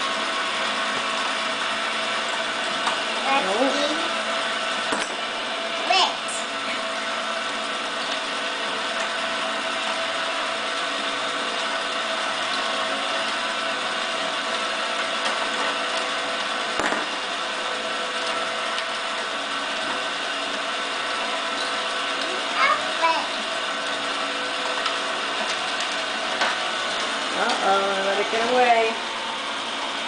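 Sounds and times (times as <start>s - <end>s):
toy motor and gears whirring: 21.4s - 23.6s.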